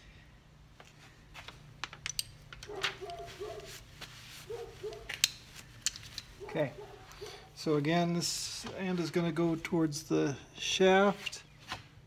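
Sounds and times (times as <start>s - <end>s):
metal part clicks and knocks: 1.8s - 2.8s, 5.1s - 6.3s
paper rustling: 2.6s - 5.8s.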